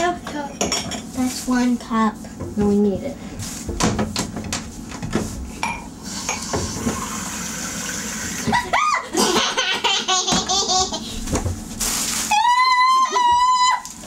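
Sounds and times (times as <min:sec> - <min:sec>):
faucet running water: 0:06.0 - 0:08.7
child giggling: 0:08.5 - 0:11.1.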